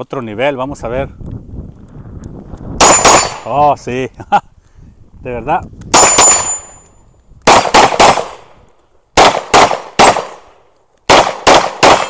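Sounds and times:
metallic ring of steel target: 2.8 - 3.5, 5.9 - 7.0
pistol shots: 2.8 - 3.5, 5.9 - 6.7, 7.4 - 8.6, 9.2 - 12.0.

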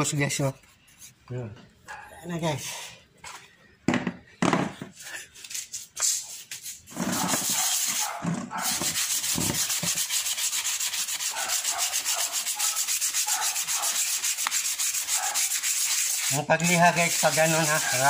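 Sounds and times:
sandpaper rubbing plastic: 5.1 - 18.0.

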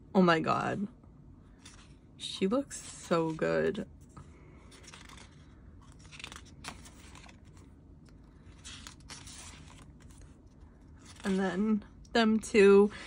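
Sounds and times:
paper pages rustling: 1.5 - 2.0, 2.7 - 11.8.

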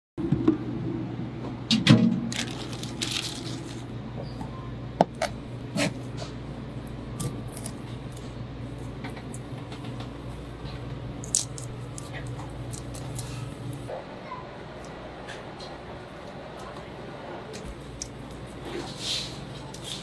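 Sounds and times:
plastic bag crinkling: 2.3 - 3.9.

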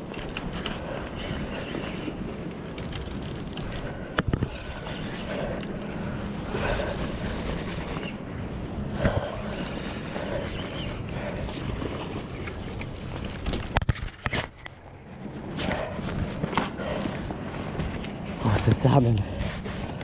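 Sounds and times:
harbour noise: 0.0 - 20.0
wind: 0.0 - 20.0
fishing reel winding: 2.6 - 3.9, 5.5 - 6.0.

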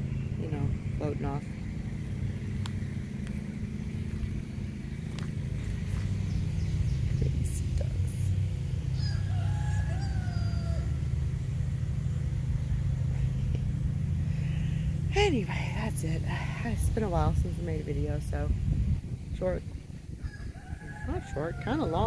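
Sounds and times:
steady low rumble: 0.0 - 22.0
rooster crowing: 8.9 - 11.3, 20.2 - 22.0.

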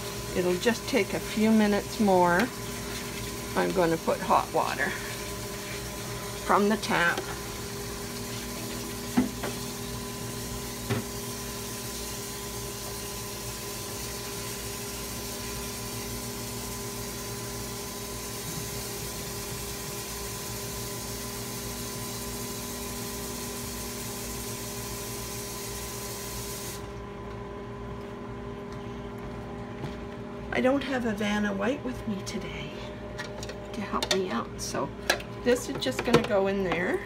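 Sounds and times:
tap water running into basin: 0.0 - 26.9.

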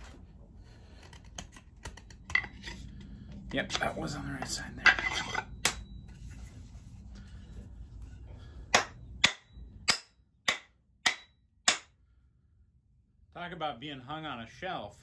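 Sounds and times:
mallet knocking axe head: 8.7 - 11.9.

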